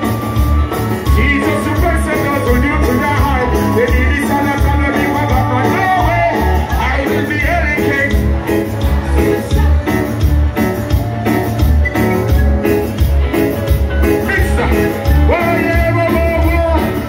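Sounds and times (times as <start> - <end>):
heavy pulsing bass line: 0.0 - 17.0
live reggae band playing: 0.0 - 17.0
man singing: 1.0 - 10.3, 14.2 - 17.0.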